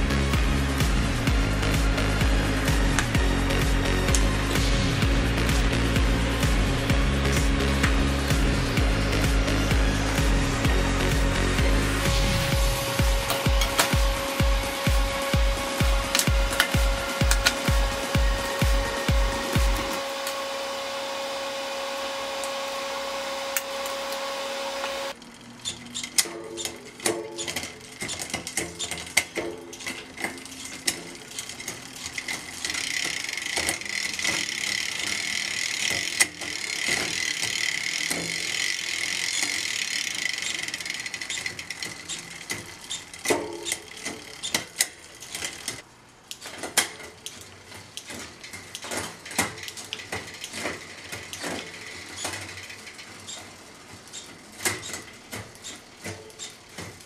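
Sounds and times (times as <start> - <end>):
music: 0.0 - 24.2, 26.1 - 40.8
bike chain whirring: 0.0 - 57.0
mechanical clicks: 12.2 - 20.4.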